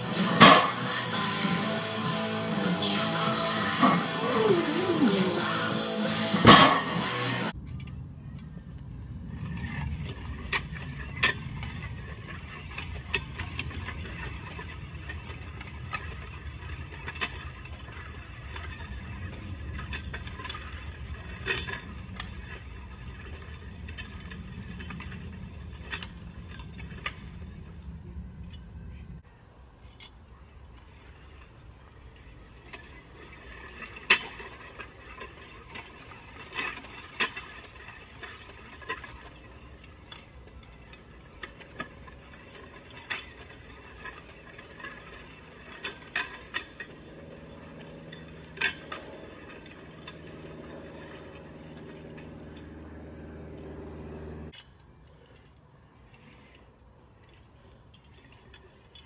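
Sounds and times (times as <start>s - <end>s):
sled scraping on pavement: 0.0s - 7.6s, 9.0s - 29.2s, 30.8s - 54.6s
metal plates clanking: 0.0s - 8.0s, 30.9s - 55.4s
low steady hum: 0.0s - 59.0s.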